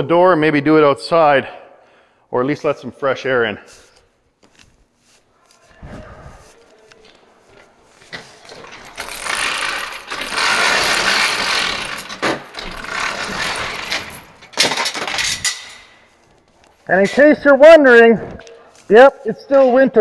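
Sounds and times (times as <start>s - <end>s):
garage door rollers rattling: 8.1s - 16.1s.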